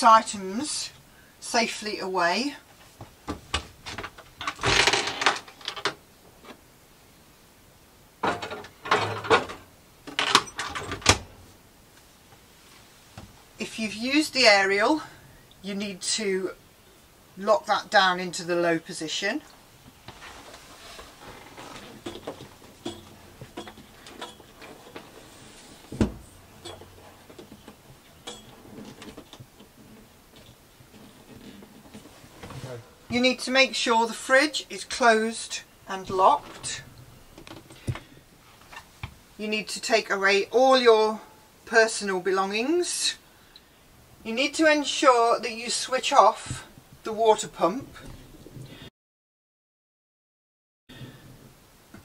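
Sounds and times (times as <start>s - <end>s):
glasses rattling: 4.0s - 5.9s, 20.8s - 31.6s, 35.0s - 37.9s
light clicks and knocks: 21.0s - 32.6s.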